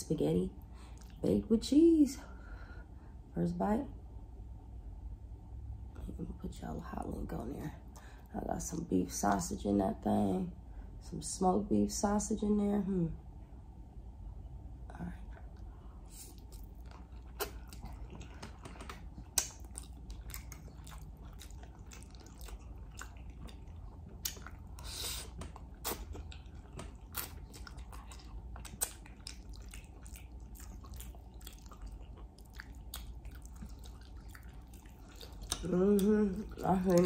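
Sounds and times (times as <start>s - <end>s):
wet chewing: 15.5s - 37.0s.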